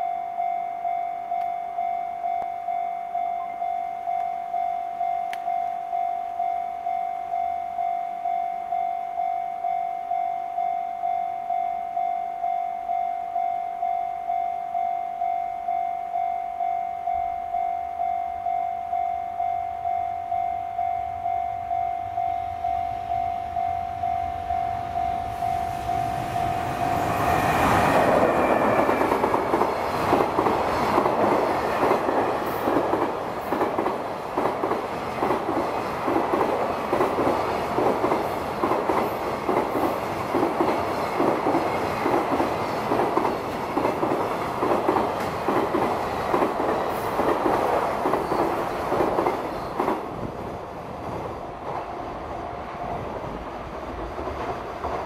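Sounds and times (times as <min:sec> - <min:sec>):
level crossing warning bell: 0:00.0 - 0:34.0
train wheels clattering over rail joints: 0:28.0 - 0:50.1.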